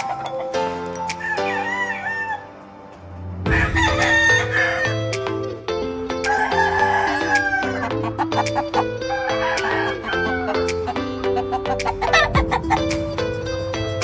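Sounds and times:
background music: 0.0s - 14.0s
rooster crowing: 1.2s - 2.6s, 3.5s - 5.1s, 6.3s - 7.9s, 9.0s - 10.7s.

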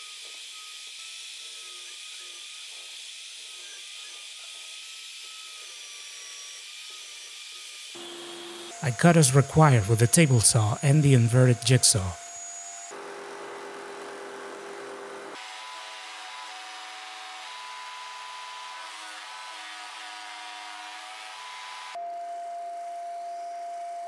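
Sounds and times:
jigsaw cutting: 0.0s - 10.4s, 11.4s - 22.0s
table saw cutting plywood: 0.0s - 22.0s
disc sander steady tone: 8.0s - 19.8s.

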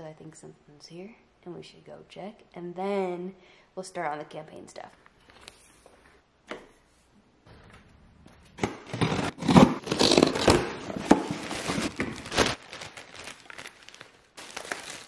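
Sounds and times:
scissors cutting cardboard box: 8.6s - 12.0s
plastic bag crinkling: 8.9s - 15.0s.

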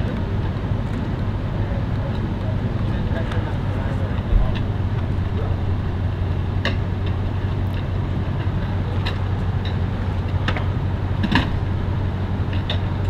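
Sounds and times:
vehicle engine idling: 0.0s - 13.0s
light clicks and knocks: 4.2s - 5.9s.

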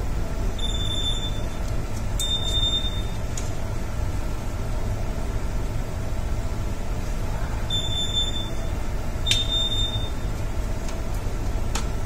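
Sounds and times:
low machinery rumble: 0.0s - 12.0s
alarm buzzer beeps: 0.6s - 1.5s, 2.2s - 3.2s, 7.7s - 10.2s.

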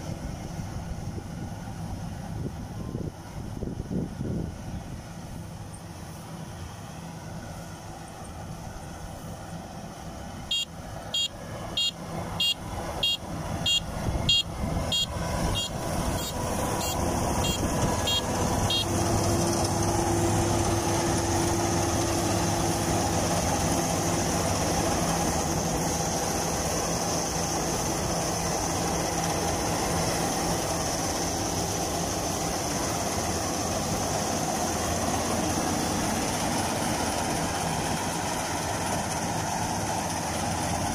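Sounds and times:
combine harvester running: 0.0s - 40.9s
high electronic beeper: 10.5s - 18.9s.

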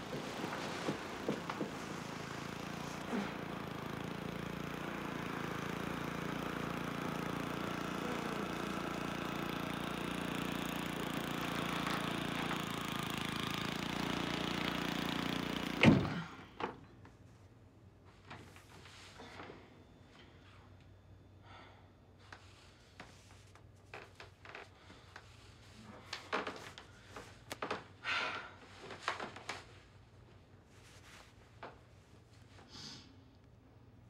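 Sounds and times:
motor hum: 0.0s - 16.9s.

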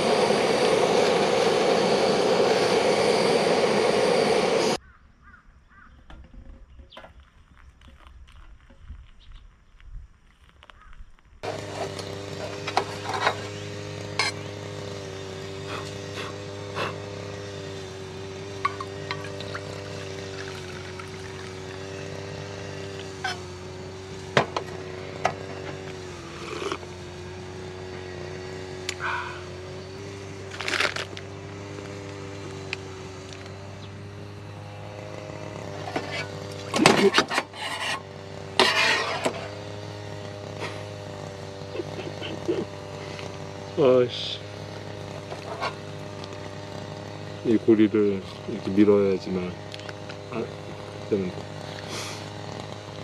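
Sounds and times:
steady low hum: 0.0s - 4.9s
steady mechanical hum: 0.0s - 5.0s, 6.3s - 53.0s
scraping and rubbing: 35.7s - 39.6s, 45.1s - 45.9s.

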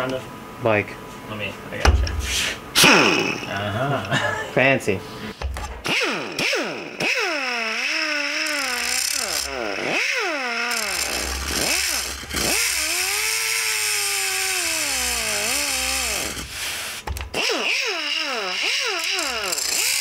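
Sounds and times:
angle grinder cutting metal: 5.8s - 20.0s.

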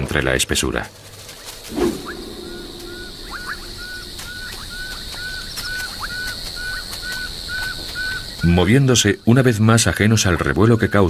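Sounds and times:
high-pitched insect drone: 1.8s - 6.9s.

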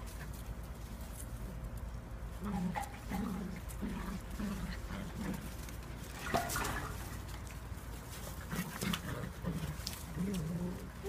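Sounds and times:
puppies growling: 2.3s - 7.4s, 8.2s - 11.0s.

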